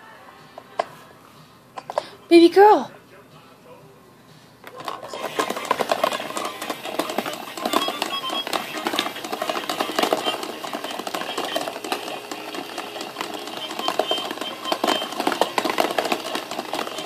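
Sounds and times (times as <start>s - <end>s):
plastic balls clattering: 4.7s - 17.0s
toy fan motor running: 4.8s - 17.0s.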